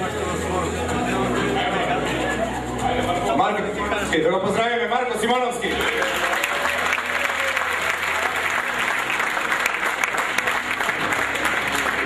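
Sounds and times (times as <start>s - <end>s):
crowd applauding: 5.2s - 12.0s.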